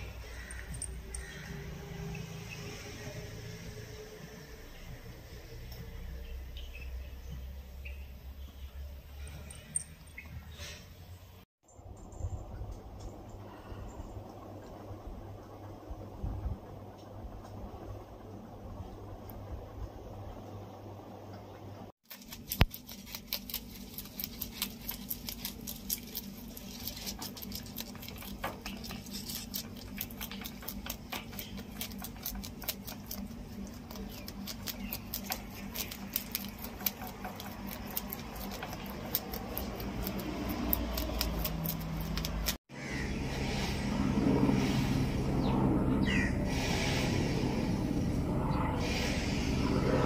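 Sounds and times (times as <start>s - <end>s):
rabbit chewing leaves: 0.0s - 7.0s, 22.0s - 45.4s
low steady hum: 0.0s - 50.0s.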